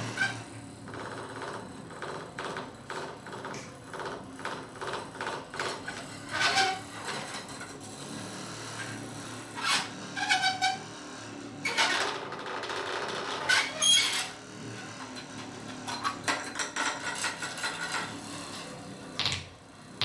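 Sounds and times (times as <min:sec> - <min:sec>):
squeaky squeals: 0:06.3 - 0:07.3, 0:09.6 - 0:10.9, 0:13.2 - 0:14.4.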